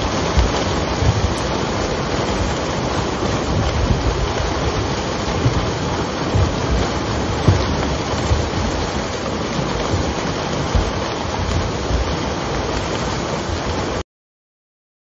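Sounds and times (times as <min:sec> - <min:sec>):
low thumps: 0:00.0 - 0:13.7.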